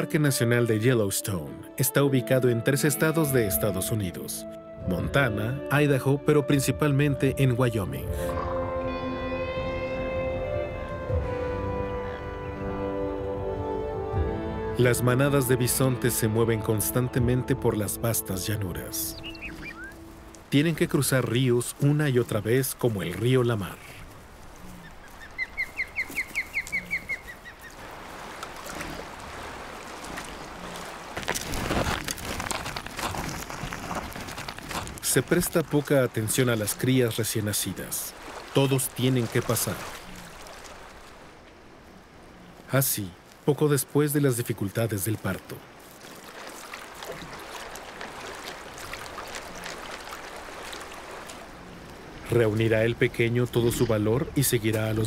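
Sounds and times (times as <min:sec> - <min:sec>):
river water rushing: 0:17.9 - 0:31.8, 0:34.0 - 0:43.3, 0:44.3 - 0:54.9
animals splashing through water: 0:18.0 - 0:42.6, 0:45.1 - 0:54.9
bird chirping: 0:19.0 - 0:20.1, 0:24.6 - 0:27.8.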